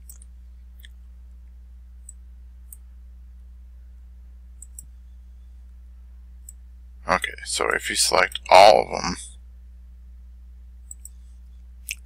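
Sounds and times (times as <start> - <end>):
computer mouse clicks: 0.0 - 1.0, 4.6 - 5.0, 10.8 - 11.3
steady low hum: 0.0 - 12.0.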